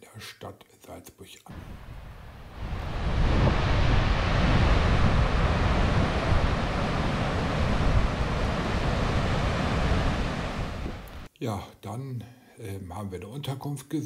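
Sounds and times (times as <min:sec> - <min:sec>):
wind buffeting microphone: 0:01.5 - 0:11.3.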